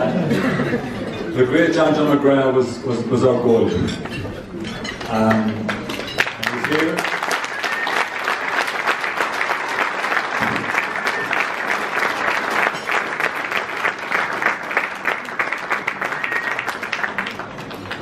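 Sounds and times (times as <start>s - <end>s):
audience applauding: 4.8s - 18.0s.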